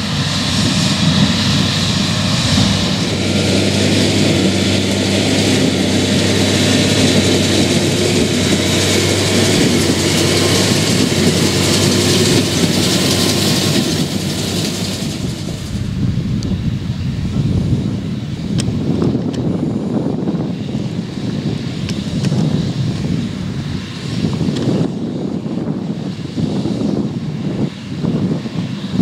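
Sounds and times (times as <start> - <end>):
square baler working: 0.0 - 16.2
tractor diesel engine under load: 0.0 - 29.0.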